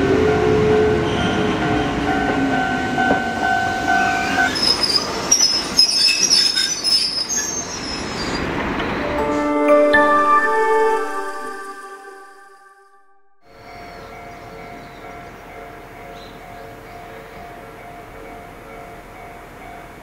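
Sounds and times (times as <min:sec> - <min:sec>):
low train rumble: 0:00.0 - 0:12.6, 0:13.5 - 0:20.0
train wheels squealing on rails: 0:00.9 - 0:02.4, 0:03.0 - 0:09.1
music: 0:09.0 - 0:20.0.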